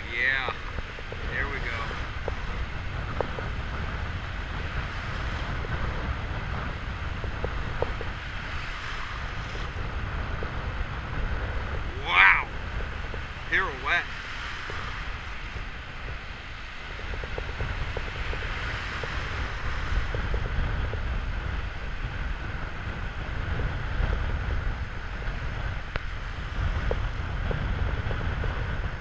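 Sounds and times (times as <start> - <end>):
ocean surf breaking: 0.0 - 29.0
wind rumbling on microphone: 0.0 - 29.0.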